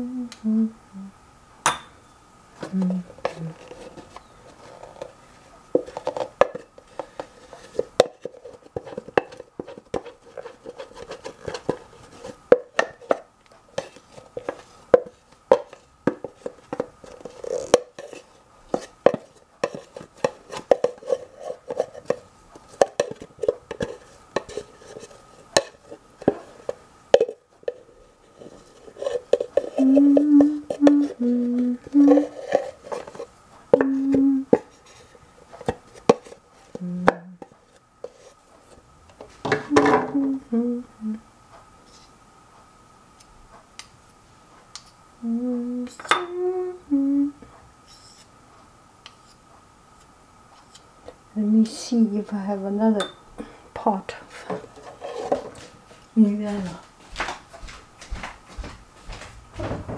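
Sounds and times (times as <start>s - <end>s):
person humming: 0.0s - 1.2s, 2.6s - 3.9s, 29.6s - 32.5s, 33.7s - 34.6s, 36.8s - 37.5s, 39.7s - 41.3s, 45.2s - 47.4s.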